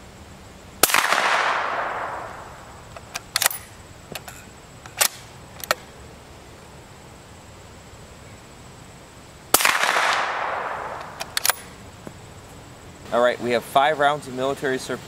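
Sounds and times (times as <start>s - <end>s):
suppressed gunshot: 0.8s - 2.6s, 9.5s - 11.7s
rifle bolt clicking: 2.9s - 5.8s, 10.9s - 11.7s.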